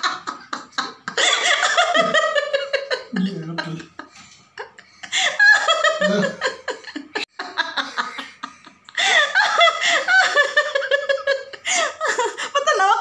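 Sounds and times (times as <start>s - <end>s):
people laughing: 0.0s - 13.0s.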